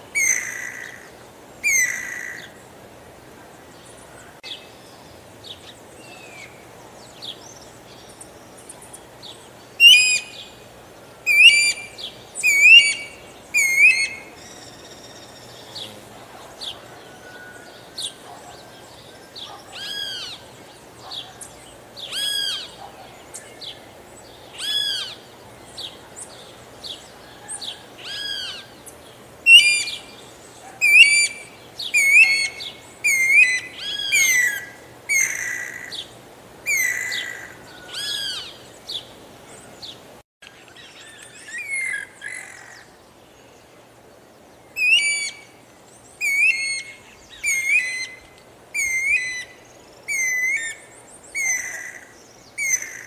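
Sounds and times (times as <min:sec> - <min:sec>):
cuckoo whistled calls: 0:09.8 - 0:10.5, 0:11.3 - 0:15.8, 0:29.5 - 0:30.1, 0:30.7 - 0:36.0, 0:44.8 - 0:45.5, 0:46.2 - 0:53.0.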